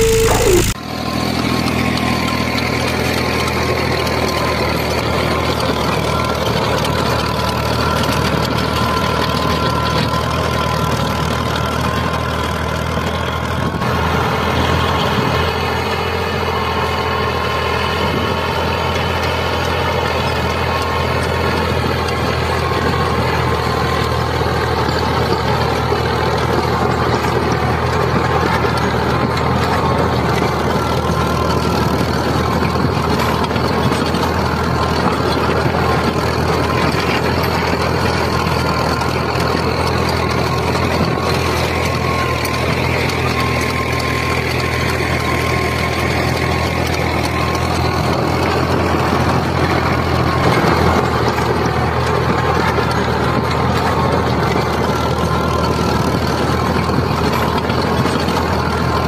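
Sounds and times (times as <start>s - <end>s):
thin steady whine: 0.0s - 0.8s
small tractor engine drone: 0.0s - 59.0s.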